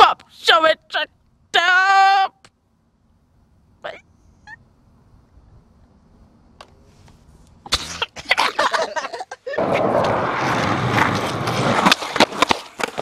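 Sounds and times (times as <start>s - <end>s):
skateboard clacks: 9.6s - 13.0s
skateboard wheels rolling on asphalt: 9.6s - 13.0s.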